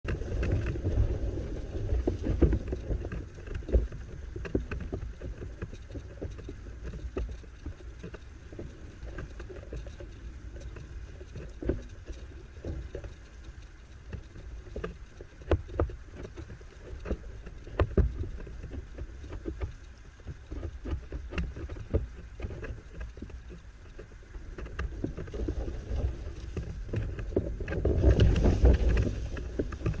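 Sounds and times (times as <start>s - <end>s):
wind buffeting microphone: 0.0s - 9.4s, 20.4s - 30.0s
rushing water: 0.0s - 30.0s
sharp clicks and knocks: 2.1s - 30.0s.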